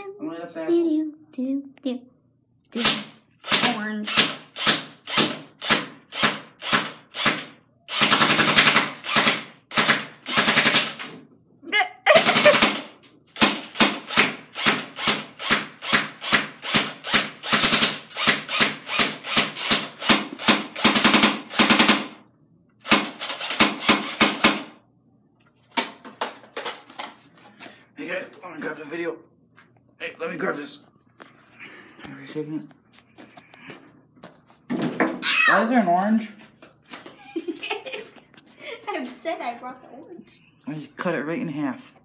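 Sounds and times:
airsoft gun automatic fire: 2.8 - 11.1, 12.1 - 22.2, 22.8 - 24.8.

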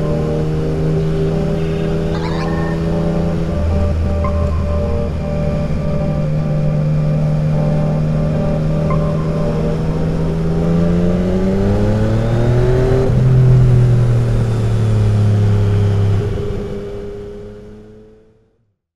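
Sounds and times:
motorcycle engine revving: 9.4 - 18.3.

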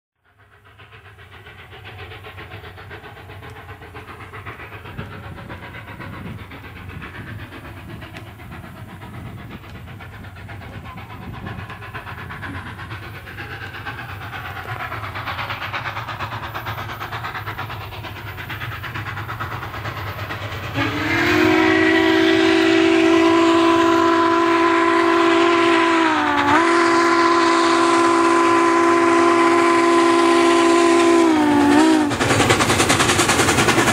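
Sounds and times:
steam locomotive rumble: 0.2 - 33.9
steam whistle blast: 20.7 - 32.2.

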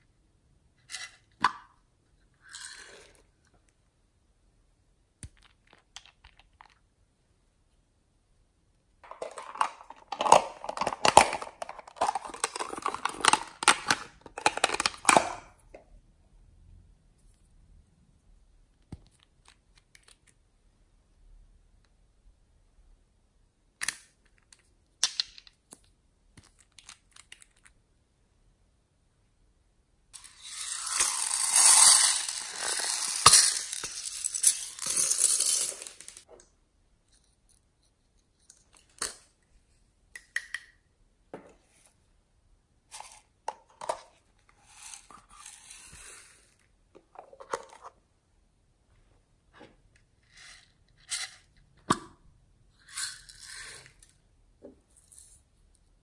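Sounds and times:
plastic containers clicking and tapping: 9.0 - 15.4.

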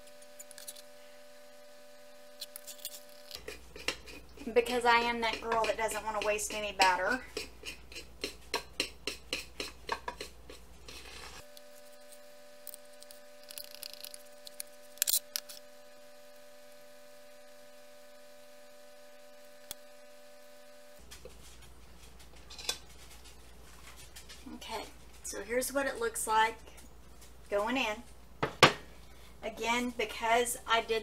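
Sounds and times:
steady multi-tone hum: 0.0 - 31.0
spatula scraping mixing bowl: 2.6 - 11.4.

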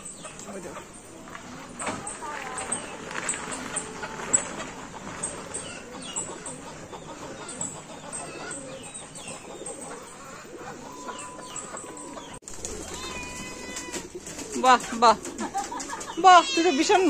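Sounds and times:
birds chirping: 0.0 - 17.0
pigeons cooing: 0.0 - 17.0
wings flapping: 1.3 - 7.6, 12.4 - 17.0.

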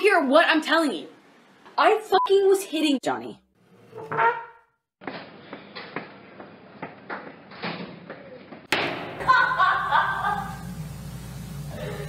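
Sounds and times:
loud laughter: 9.2 - 10.6.

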